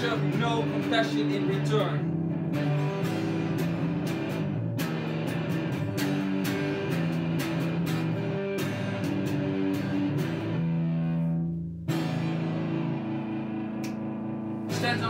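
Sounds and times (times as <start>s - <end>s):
electric guitar riff: 0.0s - 15.0s.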